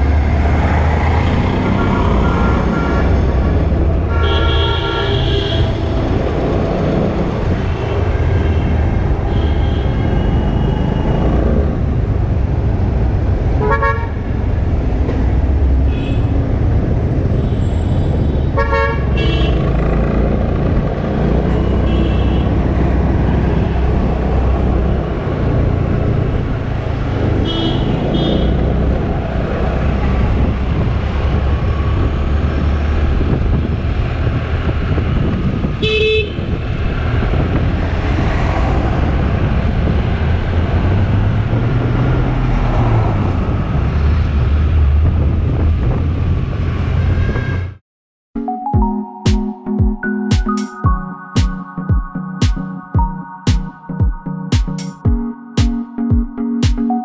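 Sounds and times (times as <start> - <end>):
car horns honking: 1.6 - 3.4, 4.1 - 6.0
scooter ride rumble: 14.2 - 47.1.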